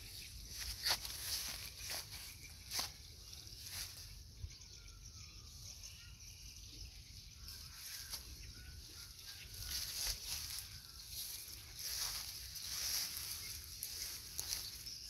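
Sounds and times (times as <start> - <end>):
leaves rustling: 0.0 - 4.2, 7.6 - 15.0.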